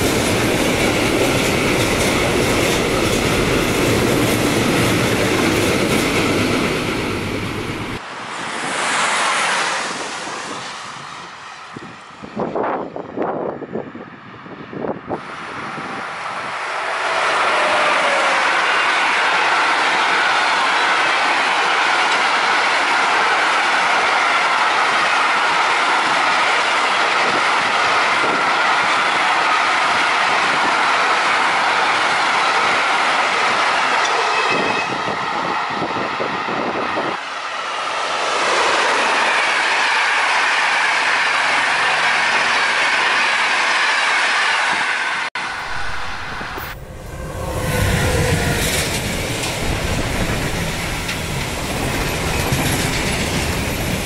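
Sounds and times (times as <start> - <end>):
passenger train passing: 0.0 - 54.0
train wheels squealing: 31.9 - 36.0, 38.9 - 54.0
freight train wheels clattering: 47.3 - 54.0.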